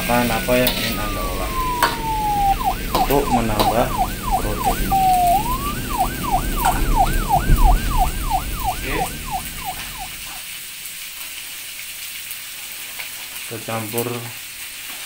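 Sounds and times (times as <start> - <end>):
siren yelping: 0.0 - 10.4
low rumble: 0.7 - 10.4
food frying in a wok: 10.5 - 15.0.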